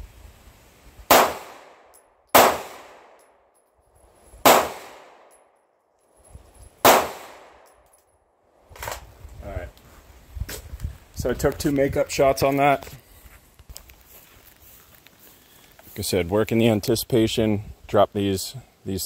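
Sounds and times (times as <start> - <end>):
pistol shots echoing: 1.1 - 3.2, 4.4 - 5.4, 6.8 - 7.7.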